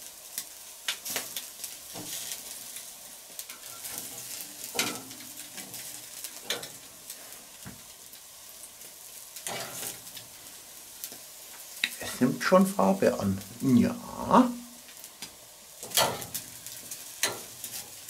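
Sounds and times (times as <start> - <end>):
fat dripping into embers: 0.0 - 18.0
meat sizzling on a grill: 0.0 - 18.0
metal tongs scraping grate: 3.4 - 6.9, 9.4 - 10.1, 15.8 - 16.4, 17.2 - 18.0.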